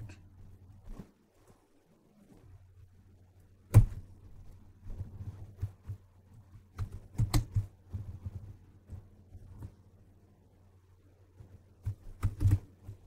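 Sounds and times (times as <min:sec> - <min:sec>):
faint low hum: 0:00.0 - 0:13.0
keyboard keystrokes: 0:06.8 - 0:07.7, 0:11.8 - 0:13.0.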